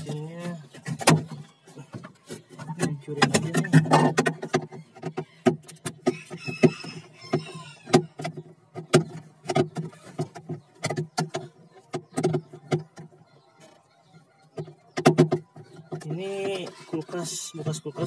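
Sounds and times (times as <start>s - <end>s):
plastic scraping: 0.0s - 13.9s
hard plastic knocking and cracking: 0.7s - 13.2s, 14.5s - 16.8s.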